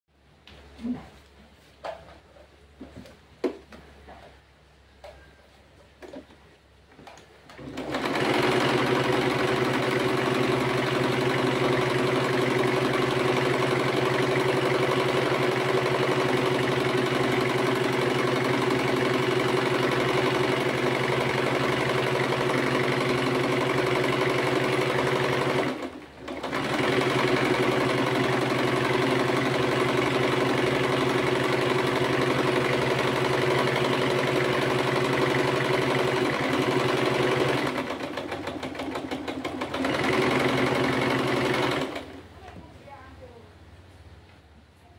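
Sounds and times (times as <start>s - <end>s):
sewing machine running: 7.5s - 42.3s.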